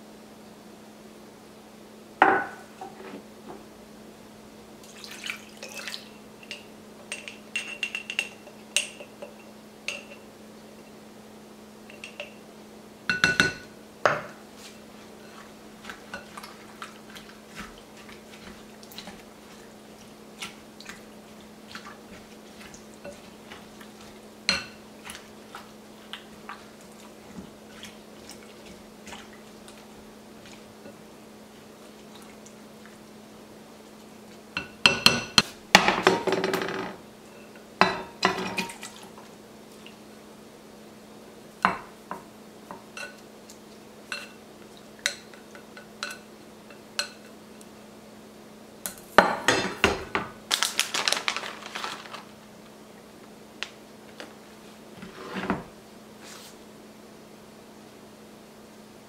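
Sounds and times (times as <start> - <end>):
low steady hum: 0.0 - 59.0
wooden spoon scraping glass bowl: 55.0 - 55.7.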